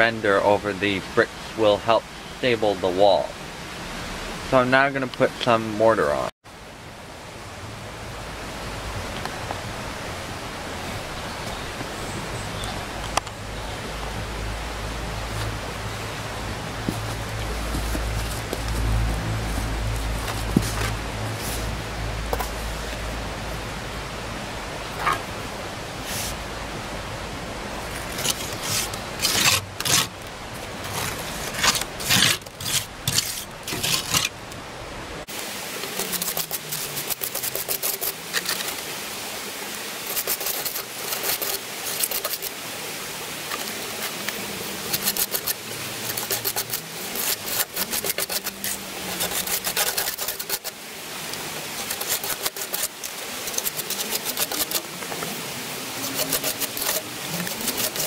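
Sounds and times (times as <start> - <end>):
low rumble: 13.4 - 25.8
trowel scraping mortar: 28.0 - 30.2, 30.8 - 34.4, 35.8 - 38.8, 40.0 - 42.6, 43.5 - 50.8, 51.8 - 54.9, 56.0 - 58.0.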